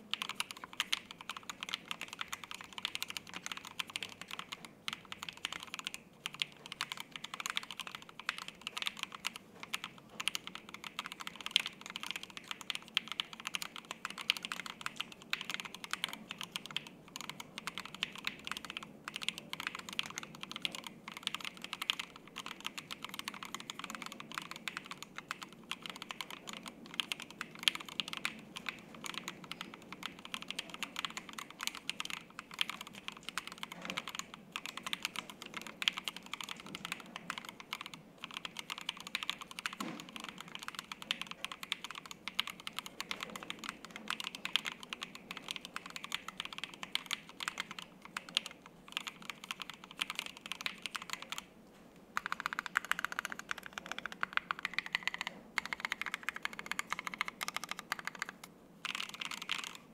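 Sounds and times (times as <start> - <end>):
mechanical keyboard typing: 0.0 - 51.5, 52.2 - 59.9.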